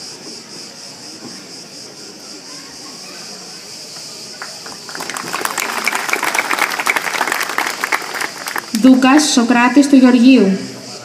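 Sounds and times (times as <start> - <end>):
insects chirring: 0.0 - 11.0
audience applauding: 4.3 - 9.0.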